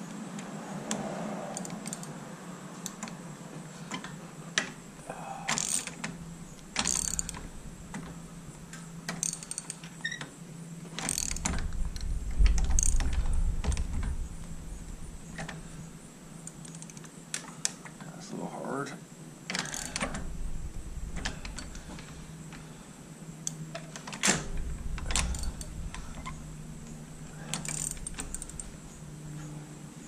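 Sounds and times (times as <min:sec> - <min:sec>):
socket ratchet clicking: 0:01.5 - 0:02.1, 0:06.8 - 0:07.5, 0:09.1 - 0:10.2, 0:11.0 - 0:13.8
low rumble: 0:06.1 - 0:09.1, 0:10.6 - 0:16.5, 0:20.0 - 0:30.0
metal tools clinking: 0:27.4 - 0:29.5.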